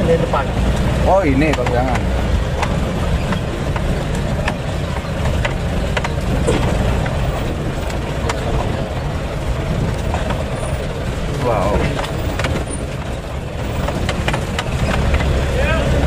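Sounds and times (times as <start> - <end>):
body rattles and knocks: 0.0 - 16.0
engine and road drone: 0.0 - 16.0.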